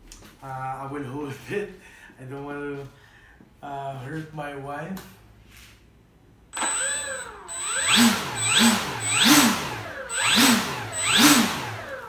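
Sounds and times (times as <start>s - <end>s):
electric motor and propeller whine: 6.6s - 12.0s.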